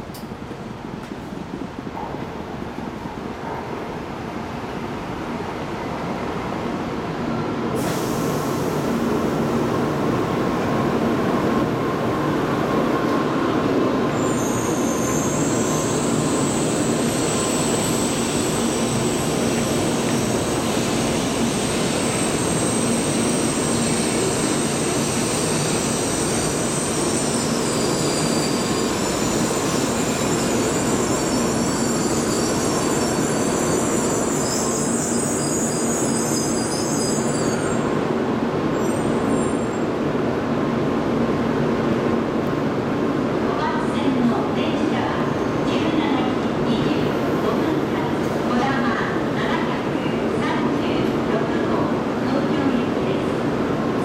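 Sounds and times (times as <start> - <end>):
train wheels and air rushing: 7.5 - 35.4
high-pitched train squeal: 14.1 - 38.0, 38.7 - 39.9.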